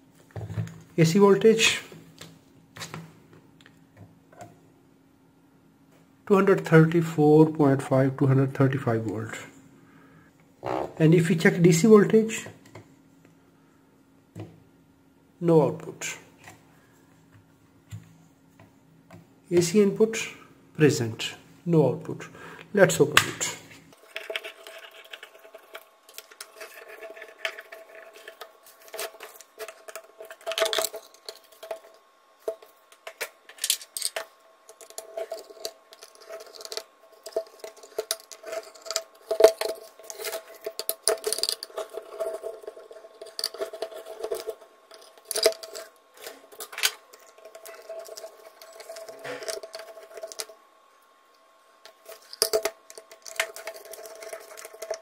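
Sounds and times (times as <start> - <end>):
faint steady hum: 0.0 - 55.0
small screws set down: 28.3 - 50.5, 51.9 - 55.0.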